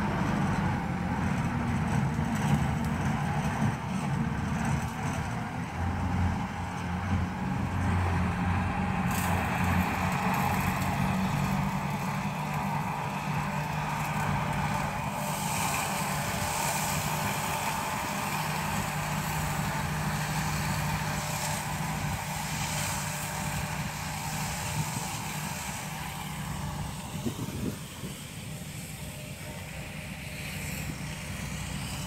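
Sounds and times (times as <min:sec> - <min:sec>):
tractor engine running: 0:00.0 - 0:32.0.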